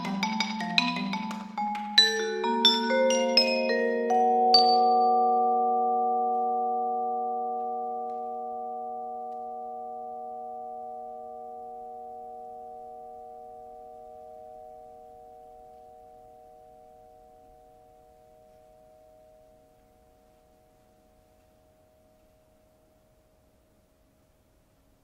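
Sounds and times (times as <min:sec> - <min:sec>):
bowed vibraphone chord: 0:00.0 - 0:23.4.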